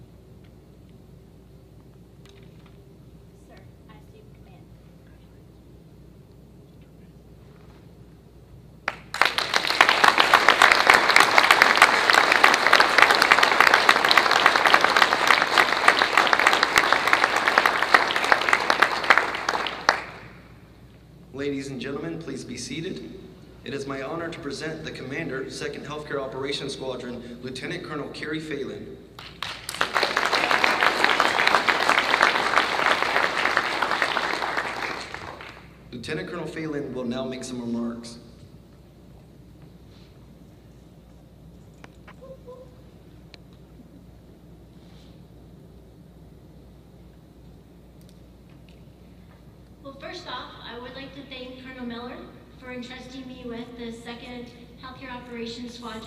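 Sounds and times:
many people clapping: 8.8s - 20.4s, 29.2s - 35.8s.

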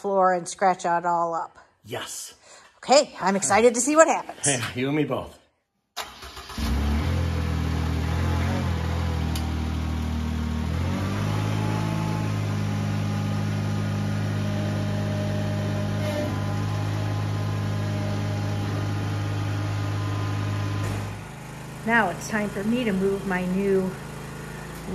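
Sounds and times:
tractor engine running: 6.0s - 24.9s.

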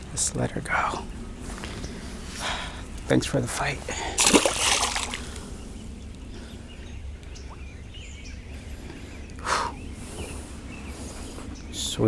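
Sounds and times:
low wind rumble: 0.0s - 12.0s
faint bird chirps: 5.2s - 12.0s.

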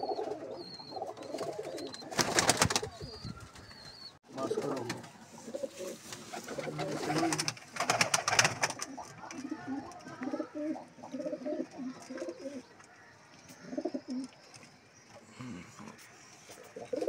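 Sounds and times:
pigeons cooing: 0.0s - 12.7s, 13.6s - 14.4s, 15.3s - 17.0s
wings flapping and scuffling: 1.1s - 10.1s.

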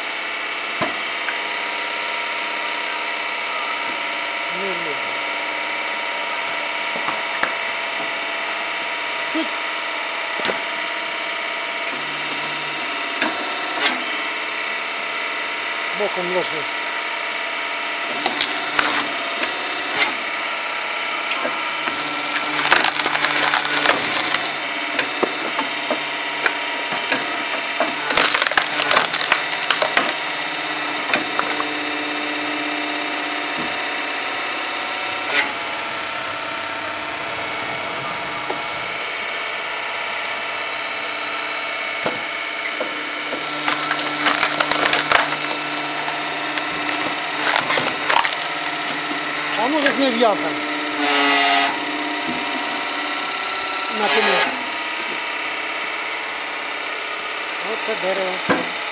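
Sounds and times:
firewood machine running: 0.0s - 58.9s
wood cracking and splintering: 18.1s - 19.3s, 21.4s - 24.7s, 27.8s - 31.7s, 43.1s - 50.1s.

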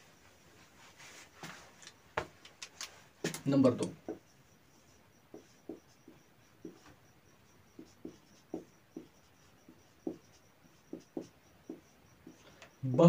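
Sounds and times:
marker pen writing on whiteboard: 3.2s - 13.0s.

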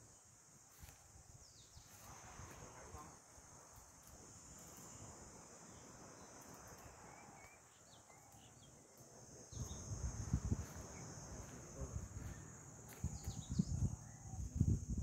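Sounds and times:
high-pitched insect drone: 1.8s - 15.0s
bird chirps: 5.7s - 9.9s, 12.2s - 14.5s.

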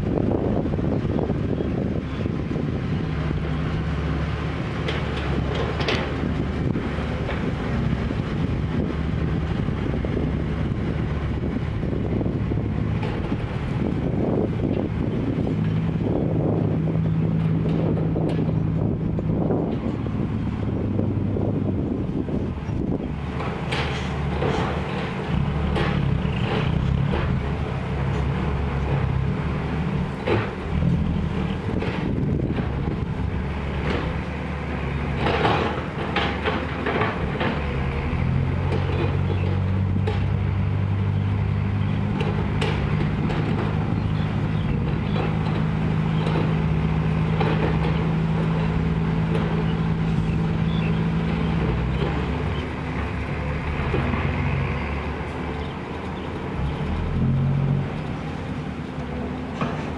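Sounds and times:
truck diesel engine: 0.0s - 59.9s
truck body knocks and rattles: 4.8s - 10.3s, 21.0s - 37.9s, 42.0s - 50.0s.

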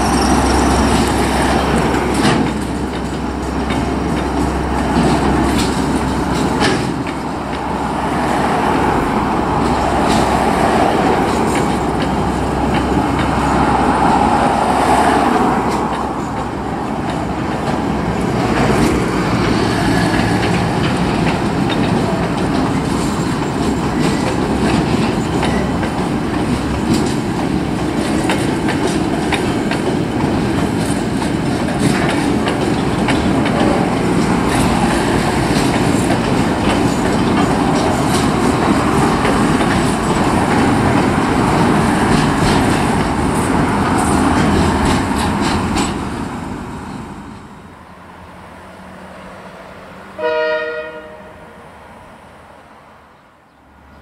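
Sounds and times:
train wheels clacking on rails: 0.0s - 47.6s
freight train rumbling past: 0.0s - 54.0s.

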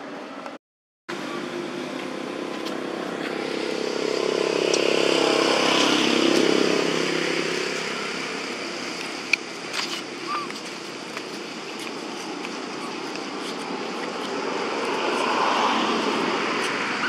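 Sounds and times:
vehicle engine passing by: 1.2s - 10.4s, 12.2s - 17.0s.

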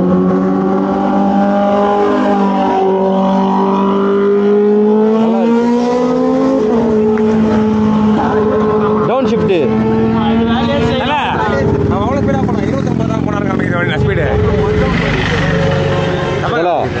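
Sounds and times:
motorcycle engines idling: 9.6s - 17.0s.

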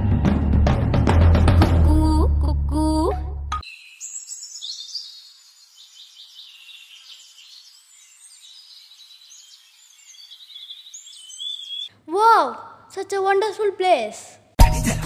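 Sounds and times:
music with heavy drums: 0.0s - 2.1s, 14.6s - 15.0s
insects trilling: 3.6s - 11.9s
birds chirping: 3.6s - 12.0s.

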